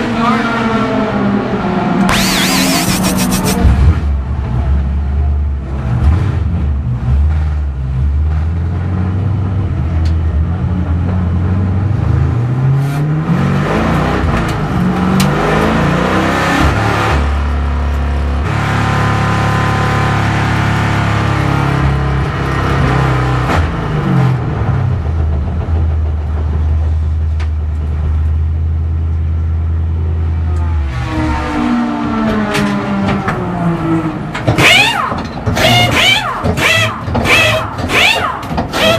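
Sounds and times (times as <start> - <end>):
race car engine: 0.0 - 28.2, 29.2 - 38.9.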